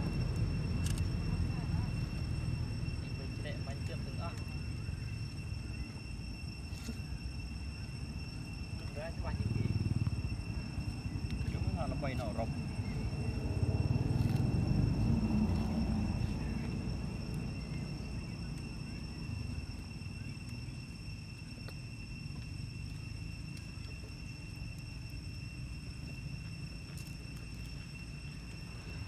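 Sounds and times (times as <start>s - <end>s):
low rumble: 0.0s - 21.0s
thin high-pitched whine: 0.0s - 29.0s.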